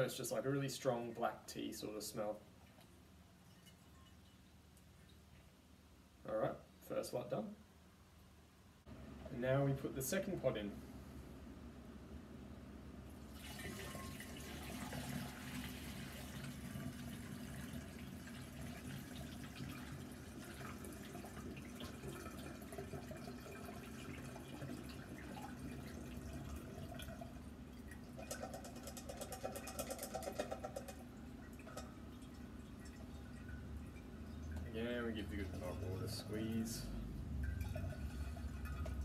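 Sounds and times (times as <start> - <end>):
liquid trickling through a strainer: 2.6 - 5.6, 13.1 - 39.0.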